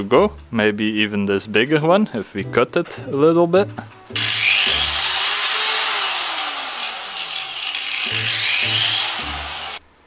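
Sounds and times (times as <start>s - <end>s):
angle grinder cutting metal: 4.2s - 9.8s.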